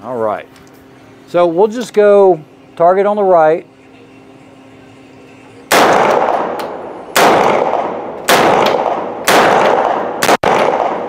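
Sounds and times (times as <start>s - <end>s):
gunshots in indoor range: 5.7s - 11.0s.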